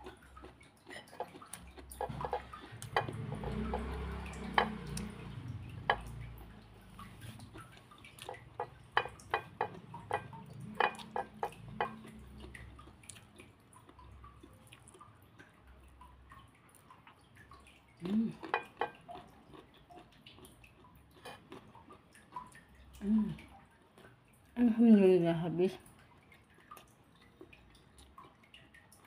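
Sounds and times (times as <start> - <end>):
wet chewing mouth sounds: 0.0 - 15.6, 18.0 - 24.2.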